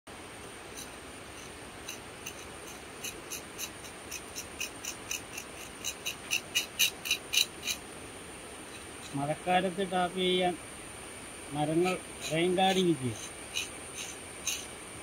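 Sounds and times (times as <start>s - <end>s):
insects droning: 0.1s - 15.0s
short high squeaks: 0.7s - 7.8s, 12.2s - 14.7s.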